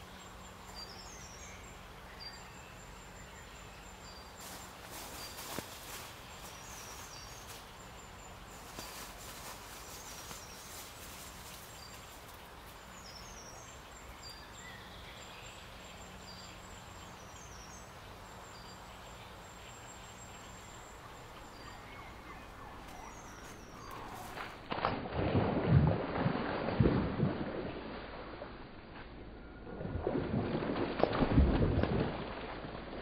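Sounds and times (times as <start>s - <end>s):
background hiss: 0.0s - 24.6s
songbirds chirping and trilling: 0.0s - 24.7s.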